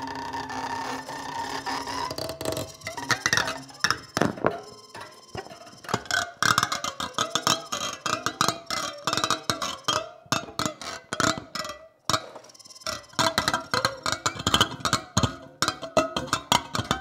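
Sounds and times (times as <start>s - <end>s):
bowed object drone: 0.0s - 6.1s
scrapes clicks and squeaks: 0.0s - 17.0s.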